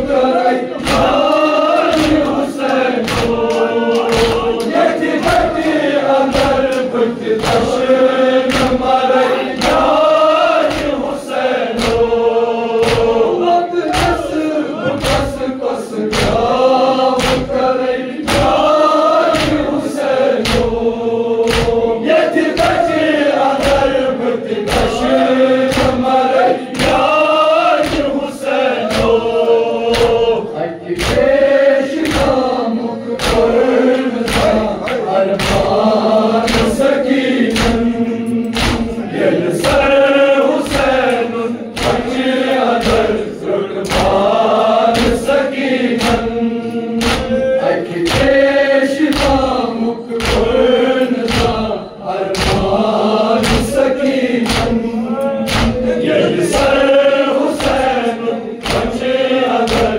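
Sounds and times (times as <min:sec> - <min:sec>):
men chanting a lament: 0:00.0 - 0:59.9
hands striking chests: 0:38.5 - 0:39.0.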